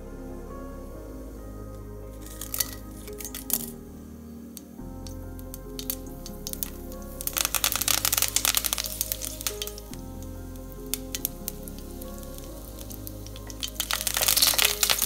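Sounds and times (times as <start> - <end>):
background music: 0.0 - 15.0
curry leaves crackling in hot oil: 5.5 - 15.0.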